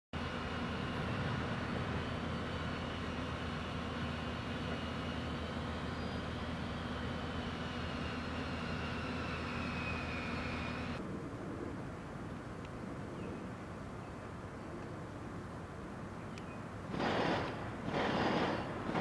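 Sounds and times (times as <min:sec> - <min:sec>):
diesel engine idling: 0:00.2 - 0:11.0
faint high whine: 0:00.2 - 0:11.6.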